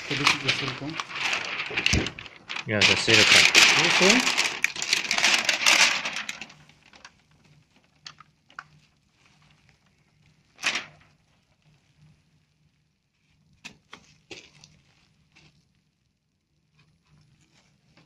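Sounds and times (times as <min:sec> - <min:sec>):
plastic film rustling and clicking: 0:00.0 - 0:11.9, 0:13.2 - 0:15.7
plastic film crackle: 0:00.0 - 0:12.1, 0:13.1 - 0:18.0.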